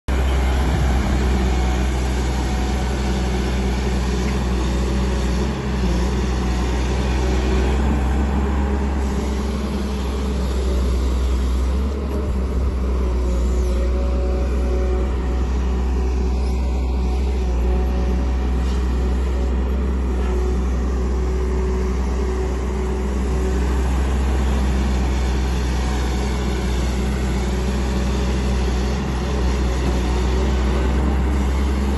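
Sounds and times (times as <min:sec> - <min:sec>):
excavator diesel engine rumbling: 0:00.1 - 0:31.9.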